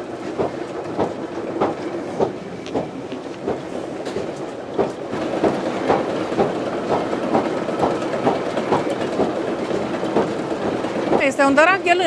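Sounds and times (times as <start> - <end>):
regular machine knock: 0.3 - 11.6.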